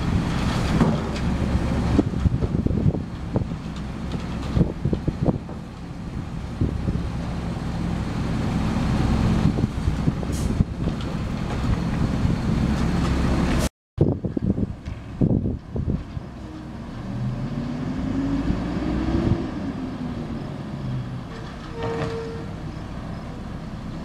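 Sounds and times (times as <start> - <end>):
clanks and knocks: 0.6 - 1.3.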